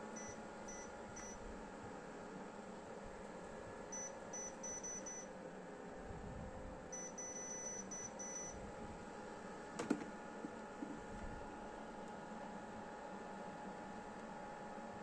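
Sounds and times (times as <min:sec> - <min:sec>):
faint steady hum: 0:00.0 - 0:15.0
short high beeps: 0:04.0 - 0:05.3, 0:07.0 - 0:08.6.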